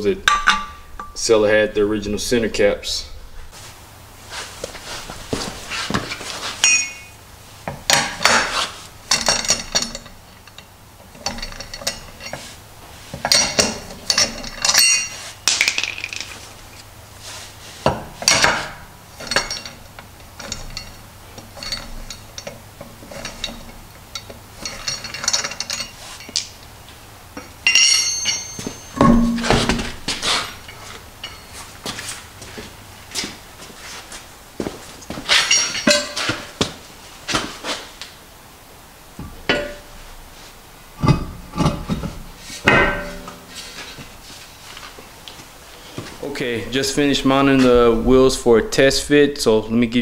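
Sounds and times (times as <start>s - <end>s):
metallic clinks of lug wrench: 6.6s - 7.2s, 13.2s - 15.2s, 27.4s - 29.2s.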